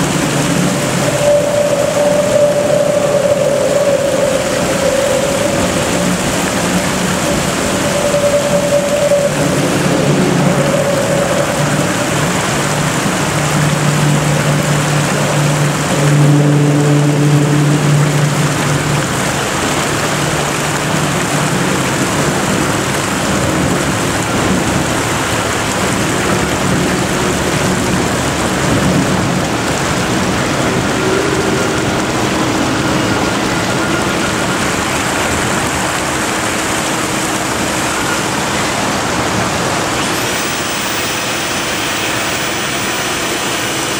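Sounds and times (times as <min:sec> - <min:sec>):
low steady hum: 0:00.0 - 0:43.9
water rushing over weir: 0:00.0 - 0:43.9.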